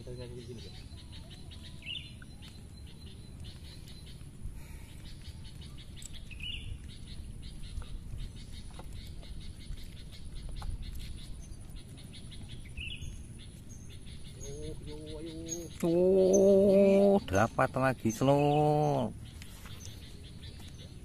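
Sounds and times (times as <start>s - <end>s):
bird chirping rapidly: 5.1s - 21.0s.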